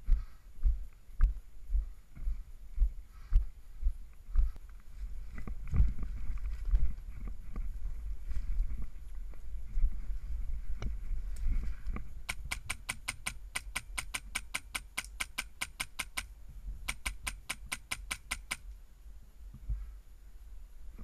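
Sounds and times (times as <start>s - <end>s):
airsoft rifle rapid shots: 12.3s - 16.3s, 16.9s - 18.6s.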